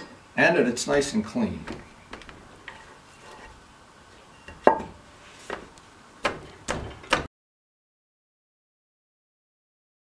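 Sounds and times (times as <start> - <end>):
sharp metal knocks and clunks: 6.2 - 7.3.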